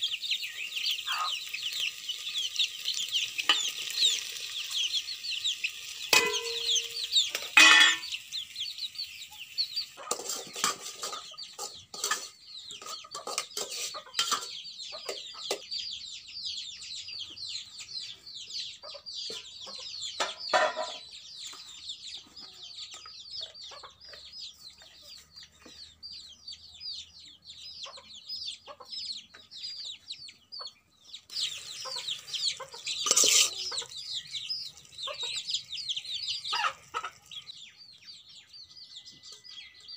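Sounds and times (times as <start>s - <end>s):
chickens cheeping and clucking: 0.0s - 39.9s
metal lid clanking on pot: 6.1s - 8.1s, 10.0s - 14.5s, 20.2s - 21.0s, 33.0s - 33.8s.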